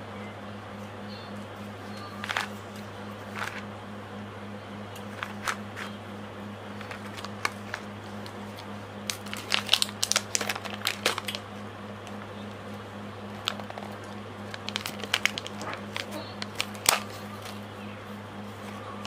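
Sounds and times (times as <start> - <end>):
steady low hum: 0.0 - 19.0
foil lid being peeled: 6.8 - 11.4, 13.3 - 17.6.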